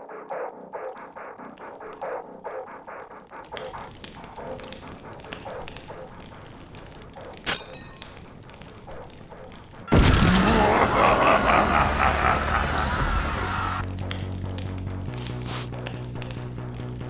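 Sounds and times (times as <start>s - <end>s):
campfire crackling: 0.1s - 17.0s
loud pitched shifting sound: 9.9s - 13.8s.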